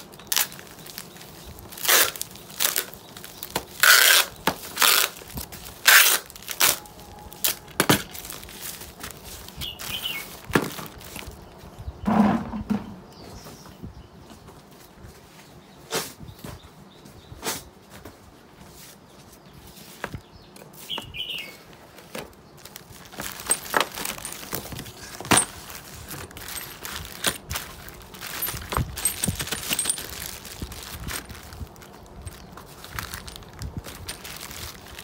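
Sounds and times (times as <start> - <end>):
plastic bags crinkling: 0.0 - 11.5, 21.9 - 35.0.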